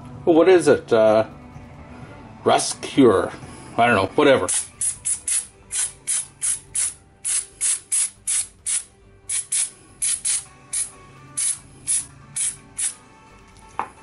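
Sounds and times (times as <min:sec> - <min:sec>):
aerosol spray hissing bursts: 0:04.5 - 0:13.0.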